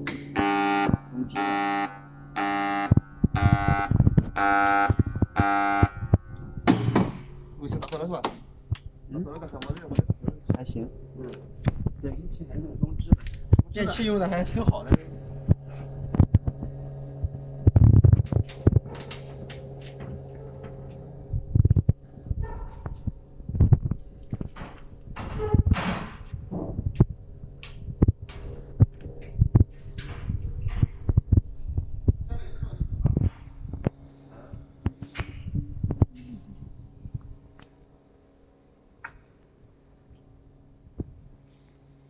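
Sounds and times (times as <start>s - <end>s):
machine electrical hum: 0.0s - 42.0s
alarm buzzer beeping: 0.3s - 6.7s
heavy thumps: 2.8s - 8.5s.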